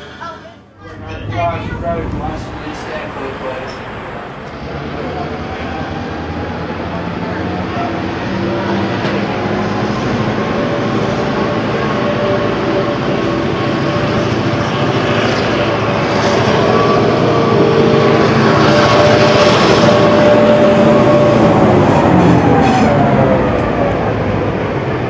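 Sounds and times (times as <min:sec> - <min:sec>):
diesel locomotive engine drone: 0:00.0 - 0:25.0.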